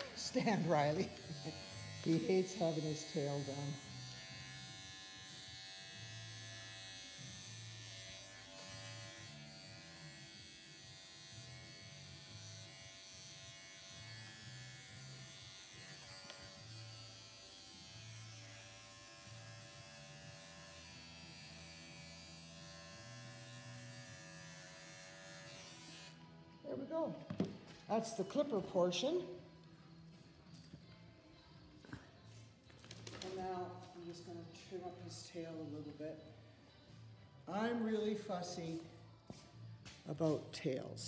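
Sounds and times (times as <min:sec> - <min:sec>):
electric clippers buzzing: 0:00.0 - 0:26.6.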